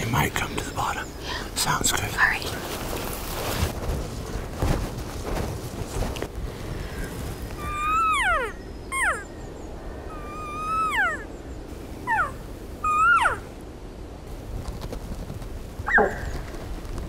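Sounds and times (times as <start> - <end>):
elk cow calls: 15.9 - 16.3.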